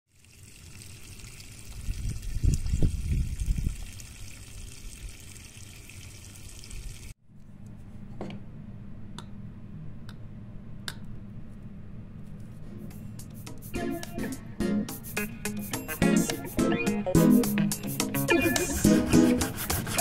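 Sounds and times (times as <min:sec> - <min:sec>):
water dripping into soil: 0:00.1 - 0:07.1.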